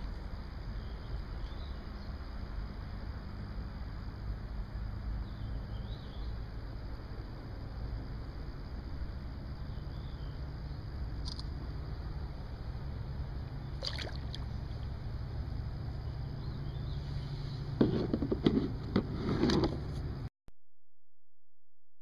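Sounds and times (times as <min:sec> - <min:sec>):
steady low rumble: 0:00.0 - 0:17.8
water splashing: 0:13.7 - 0:14.9.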